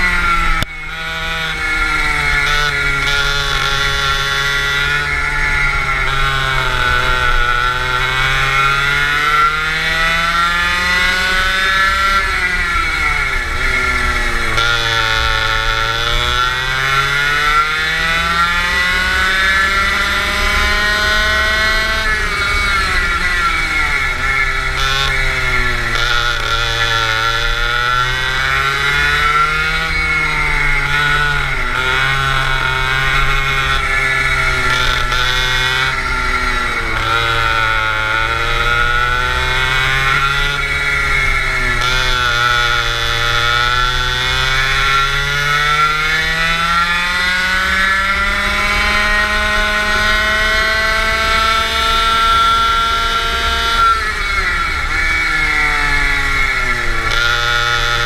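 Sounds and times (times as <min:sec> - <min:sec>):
go-kart engine: 0:00.0 - 0:58.0.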